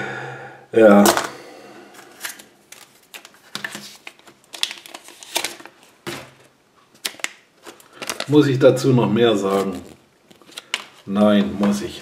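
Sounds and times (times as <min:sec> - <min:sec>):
paper rustling: 0:02.2 - 0:08.5.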